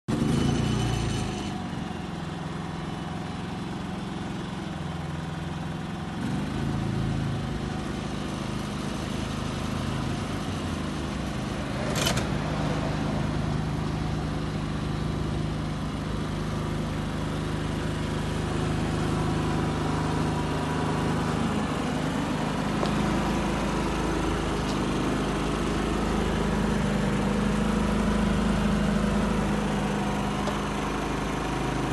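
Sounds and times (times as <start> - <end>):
generator engine humming: 1.5 - 31.9
sharp click: 11.9 - 12.4.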